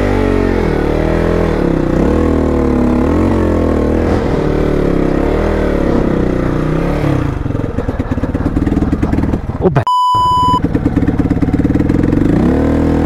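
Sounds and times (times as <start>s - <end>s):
motorcycle engine running: 0.0s - 9.8s, 10.4s - 13.0s.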